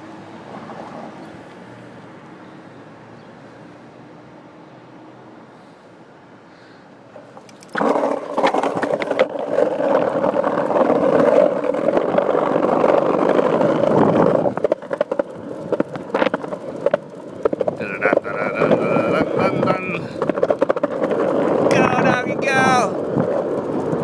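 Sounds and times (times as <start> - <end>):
skateboard wheels rolling on pavement: 0.0 - 24.0
sharp skateboard clacks: 7.1 - 22.2.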